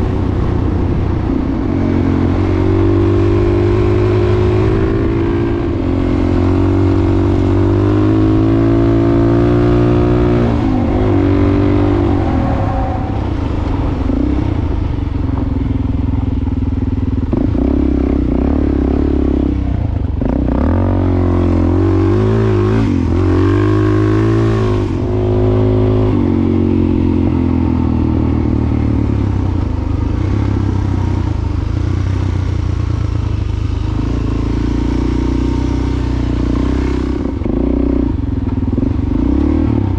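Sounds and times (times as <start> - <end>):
motorcycle engine revving: 0.0 - 39.9.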